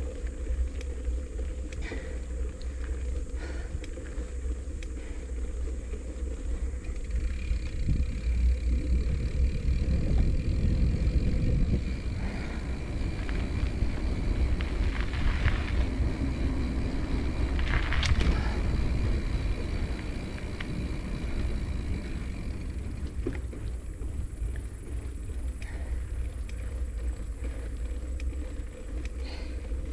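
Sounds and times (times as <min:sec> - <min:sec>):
bike tyres rumbling on pavement: 0:00.0 - 0:29.9
wind buffeting the microphone: 0:01.7 - 0:28.5
light rattling clicks: 0:12.0 - 0:29.9.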